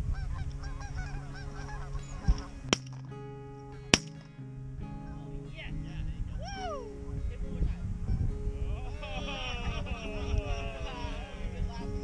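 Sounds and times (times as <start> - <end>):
geese honking and clucking: 0.0 - 2.6
guitar music: 0.0 - 12.0
shotgun shots: 4.0 - 4.2.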